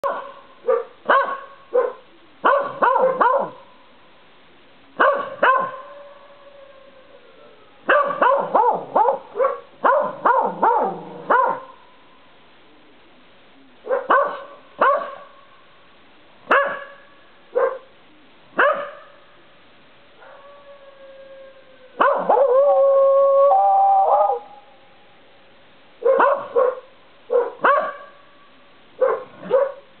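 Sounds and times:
dogs barking: 0.0 - 3.6, 5.0 - 5.9, 7.9 - 11.8, 13.9 - 15.3, 16.5 - 17.0, 17.6 - 17.9, 18.6 - 19.1, 22.0 - 22.6, 26.0 - 28.2, 29.0 - 29.9
dog howling: 20.2 - 24.5.

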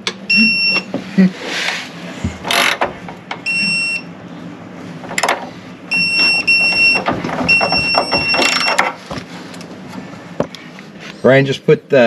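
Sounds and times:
high electronic beeps: 0.3 - 0.9.

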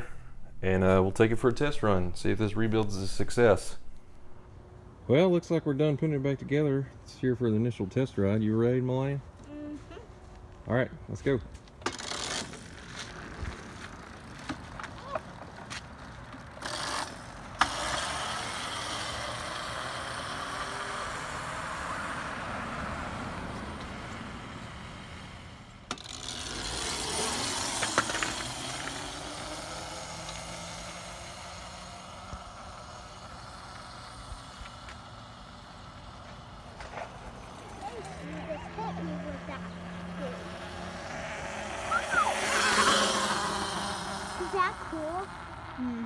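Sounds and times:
electric motor and tyres whirring: 11.6 - 46.0.

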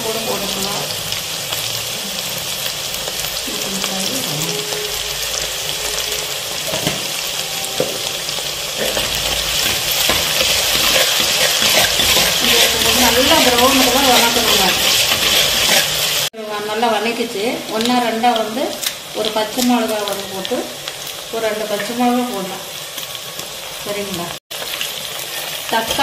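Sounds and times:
onions sizzling in oil: 0.0 - 26.0
steel spoon stirring: 4.4 - 16.3.

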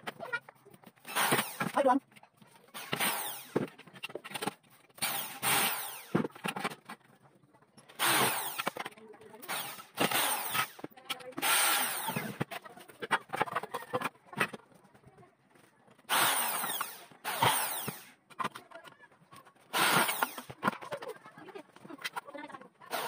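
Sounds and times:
electric drill drilling into metal: 1.0 - 1.8, 2.8 - 3.6, 5.0 - 6.2, 8.0 - 8.8, 9.4 - 12.4, 16.1 - 18.1, 19.7 - 20.6.

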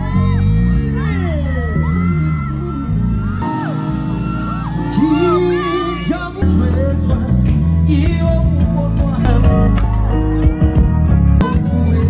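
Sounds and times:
bass guitar: 0.0 - 12.0
singer's voice: 4.6 - 12.0.

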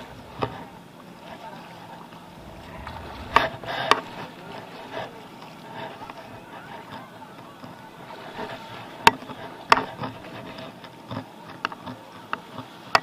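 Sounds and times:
shallow water hissing: 2.3 - 6.1.

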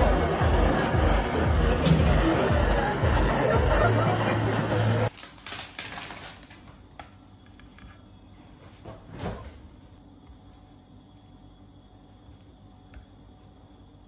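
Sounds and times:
music: 0.0 - 5.1
restaurant chatter: 0.0 - 5.1.

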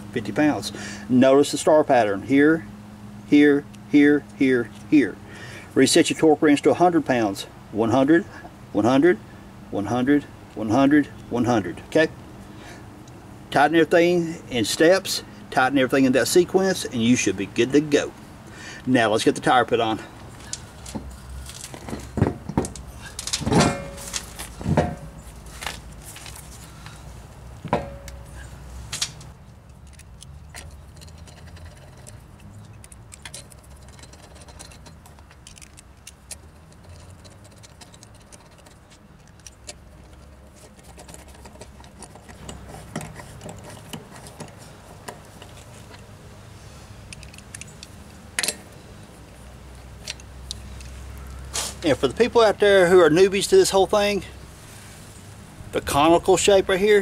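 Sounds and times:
metal clinks of lug nuts: 20.0 - 25.2, 27.7 - 46.1, 47.1 - 48.8.

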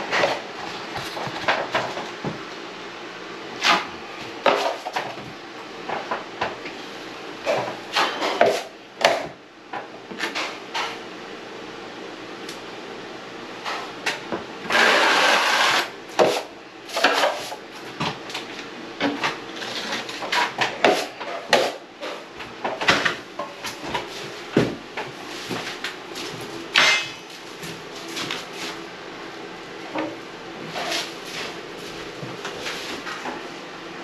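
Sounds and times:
drywall knife scraping: 14.7 - 17.6, 19.5 - 21.8.

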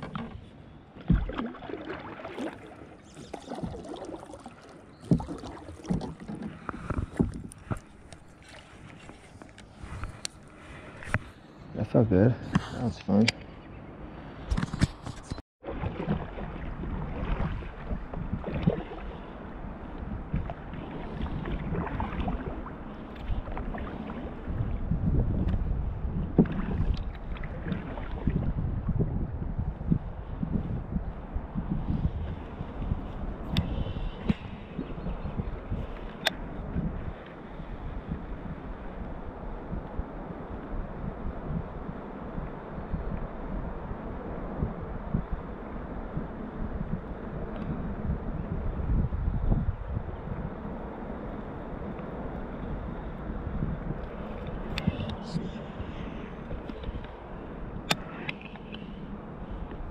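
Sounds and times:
knocks and thuds on a kayak: 0.0 - 1.5, 5.0 - 7.8, 24.6 - 29.2
paddle splashing in water: 0.0 - 10.0, 15.6 - 28.6
paddle knocking against hull: 1.0 - 1.8, 3.3 - 4.1, 5.0 - 7.8, 15.6 - 18.9.

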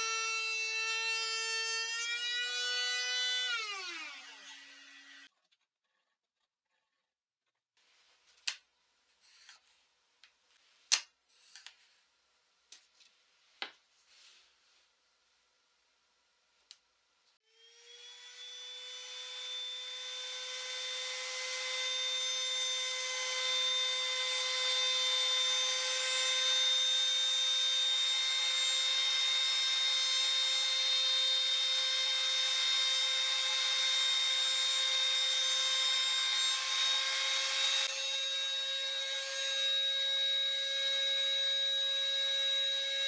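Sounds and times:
router bit cutting wood: 0.0 - 5.3, 17.5 - 43.0
router whining: 0.0 - 5.3, 17.5 - 43.0.

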